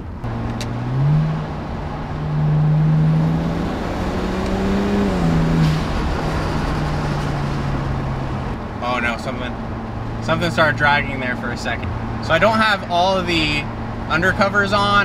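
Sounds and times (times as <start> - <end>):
car engine accelerating: 0.0 - 12.5.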